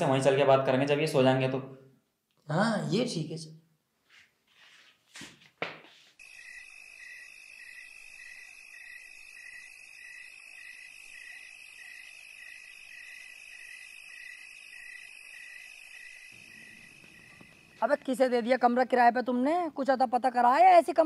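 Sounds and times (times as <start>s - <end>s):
insect trilling: 6.2s - 18.2s
insect chirping: 6.2s - 18.9s.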